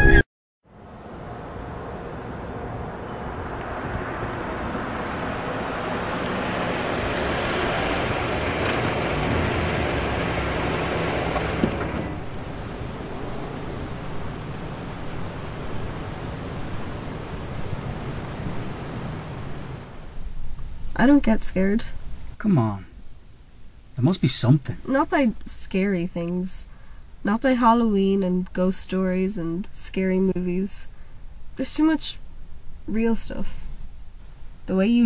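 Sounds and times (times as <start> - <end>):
car engine and tyre noise: 0.6 - 20.9
steady hiss: 20.0 - 28.0.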